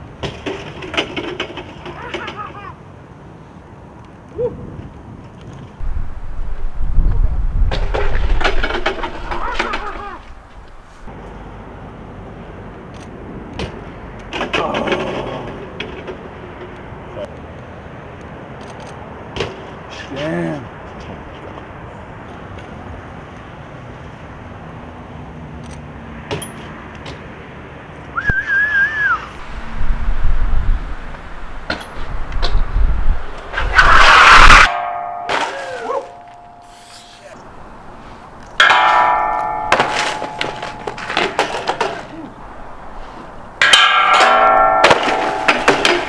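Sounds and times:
outdoor background noise: 0.0s - 46.0s
bike knocks and rattles landing: 0.2s - 2.4s, 7.6s - 10.6s, 38.6s - 42.3s
person whistling a held note: 28.2s - 29.3s
bike striking steel clang: 31.6s - 32.6s, 33.5s - 37.8s, 38.6s - 46.0s.

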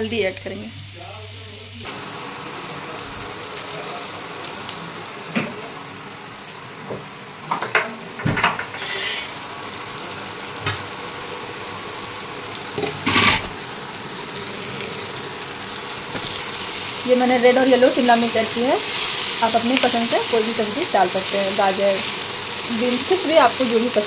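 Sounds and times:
onions sizzling in oil: 0.0s - 24.0s
spatula scraping and clinking: 8.8s - 9.3s, 12.8s - 13.5s.

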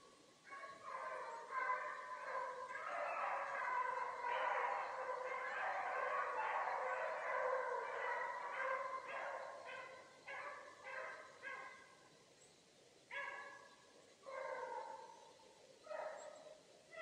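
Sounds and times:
hounds baying: 0.5s - 11.8s, 14.3s - 15.1s.

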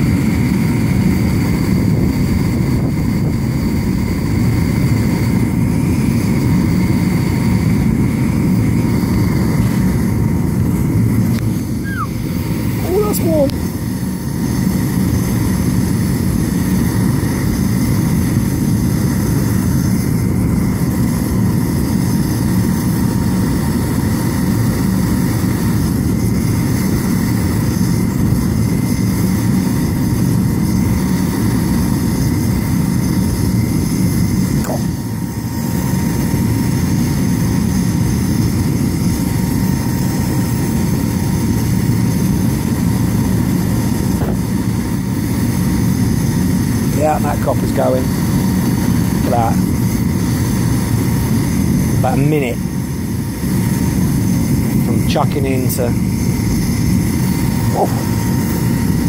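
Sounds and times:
thin steady whine: 0.0s - 59.0s
burner roaring: 5.4s - 20.9s, 41.7s - 51.1s, 51.7s - 59.0s.

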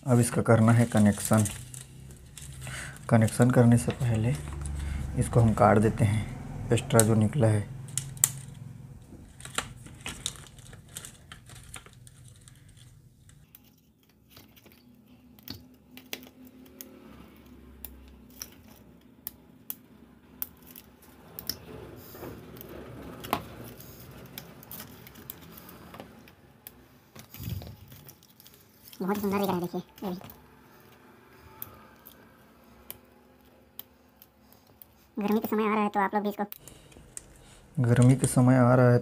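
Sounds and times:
rustle of wires and plastic: 0.1s - 5.4s, 7.9s - 16.4s, 20.5s - 30.4s, 36.6s - 38.8s.

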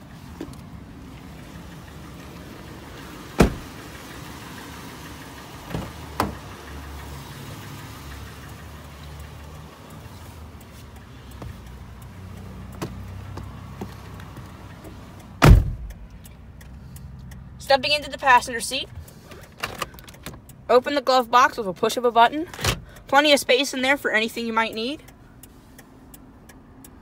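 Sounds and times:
car engine idling: 0.0s - 27.0s
car door clacking shut: 3.3s - 3.7s, 5.7s - 6.4s, 15.4s - 15.9s
dull door thuds: 3.4s - 3.7s, 15.4s - 15.9s.

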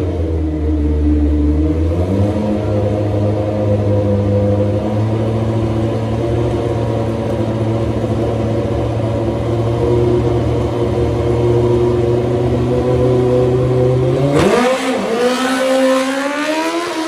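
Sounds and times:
motorcycle engine running steadily: 0.0s - 15.3s.

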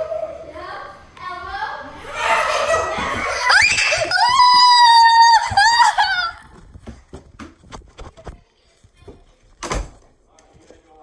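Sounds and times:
child screaming: 2.0s - 6.5s.

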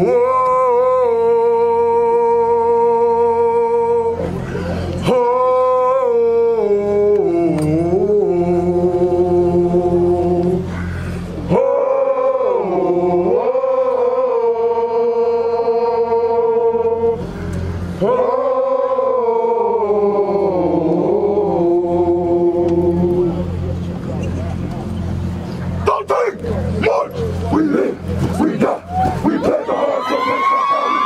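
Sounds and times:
man singing long held notes: 0.0s - 23.8s
low steady drone: 0.0s - 31.0s.

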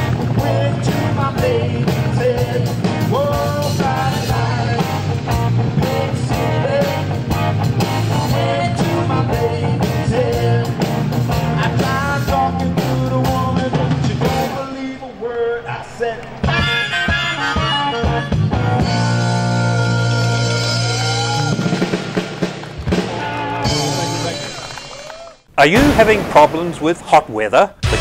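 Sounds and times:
drums steady beat: 0.0s - 14.7s
man singing: 0.3s - 5.1s, 5.8s - 7.2s, 8.1s - 18.4s.

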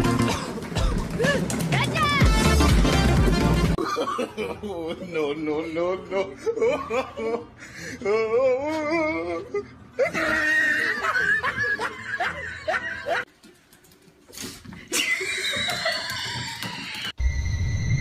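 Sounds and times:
person laughing: 2.9s - 13.2s, 14.8s - 17.1s.

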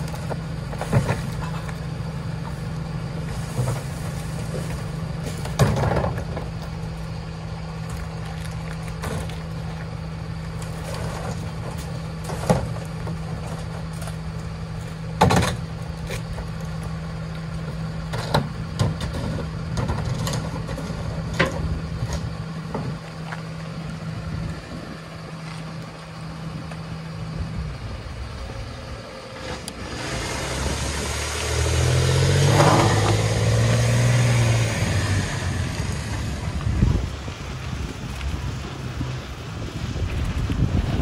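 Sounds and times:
trash can clanking: 0.0s - 1.8s, 3.3s - 6.6s, 10.8s - 14.2s, 15.2s - 16.5s
diesel truck engine: 0.0s - 41.0s.

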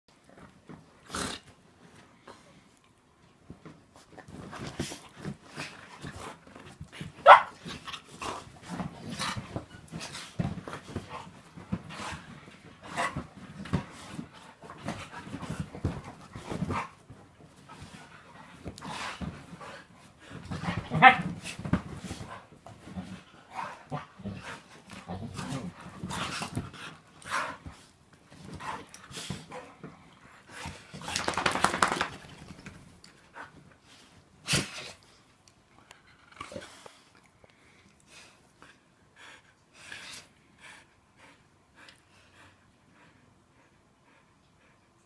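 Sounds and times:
bodies and paws thumping on bedding: 3.4s - 34.9s
dogs play vocalizing: 4.2s - 32.6s
dog snapping: 31.1s - 32.5s.

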